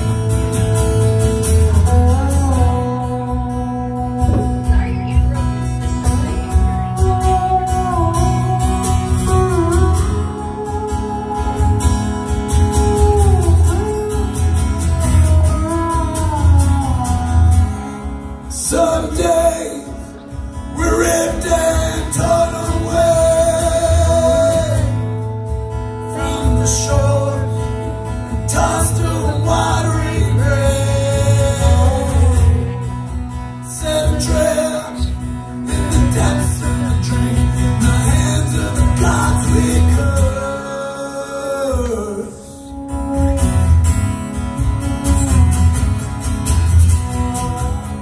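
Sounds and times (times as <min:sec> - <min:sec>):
acoustic guitar strumming: 0:00.0 - 0:48.0
man singing: 0:01.2 - 0:43.8, 0:46.8 - 0:48.0.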